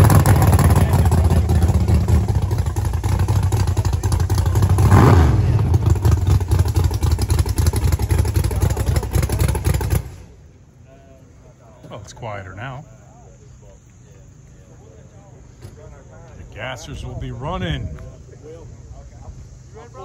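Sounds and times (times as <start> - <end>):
drag car engines rumbling: 0.0 - 20.0.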